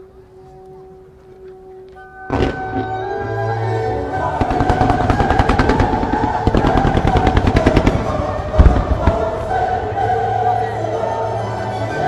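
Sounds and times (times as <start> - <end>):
music: 0.0 - 12.0
firework boom: 2.3 - 3.0, 4.4 - 9.7
fireworks cracking: 2.3 - 3.1, 4.3 - 10.1.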